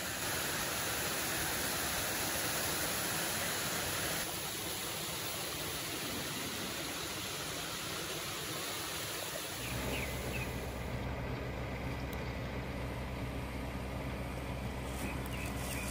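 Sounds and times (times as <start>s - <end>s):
stream rushing over weir: 0.0s - 11.0s
steady low hum: 0.0s - 15.9s.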